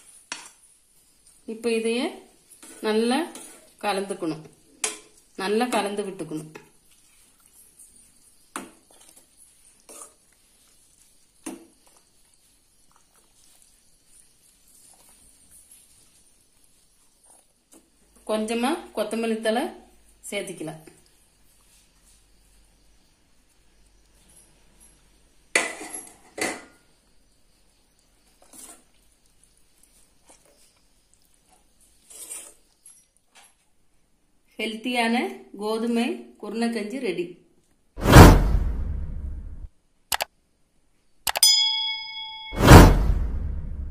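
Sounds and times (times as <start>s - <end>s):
metal spoon stirring porridge: 2.1s - 18.1s, 28.2s - 33.6s
metal spoon scraping steel pot: 2.5s - 3.8s.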